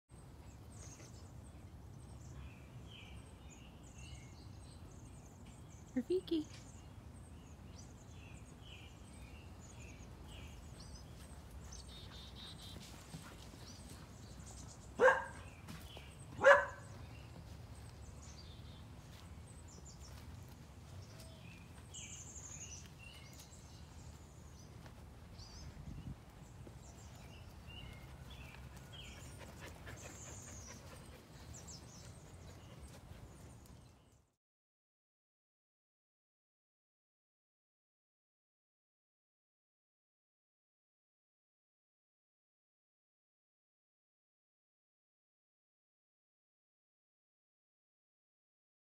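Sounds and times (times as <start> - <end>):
faint outdoor background noise: 0.1 - 34.4
dog barking: 15.0 - 15.4, 16.4 - 16.9.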